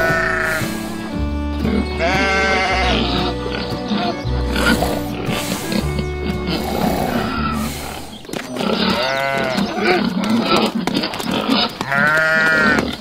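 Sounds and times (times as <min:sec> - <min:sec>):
goat bleating: 0:00.0 - 0:08.0, 0:08.6 - 0:10.8, 0:11.6 - 0:13.0
low music bass: 0:00.0 - 0:08.2
rough animal noises: 0:00.0 - 0:13.0.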